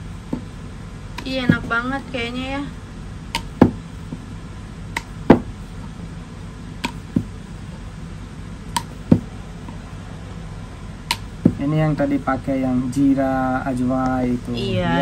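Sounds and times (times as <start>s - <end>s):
low steady hum: 0.0s - 15.0s
rolling pin knocking on board: 3.3s - 4.2s, 5.0s - 5.5s, 6.8s - 7.3s, 8.8s - 9.3s.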